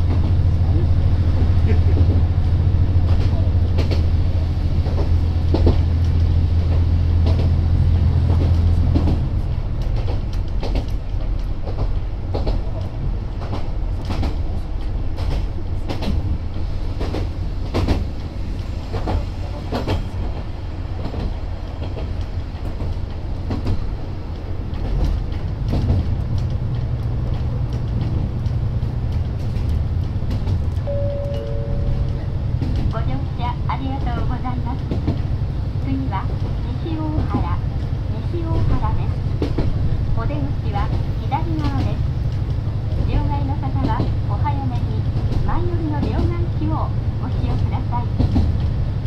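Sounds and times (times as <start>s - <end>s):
train rumbling on rails: 0.0s - 49.0s
wheels clicking over rail joints: 1.7s - 49.0s
two-note tone: 30.8s - 32.5s.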